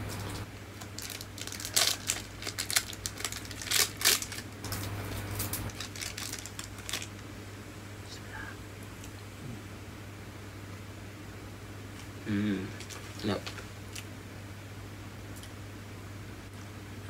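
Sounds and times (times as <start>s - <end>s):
plastic wrapper crinkling: 0.1s - 7.3s, 12.8s - 14.1s.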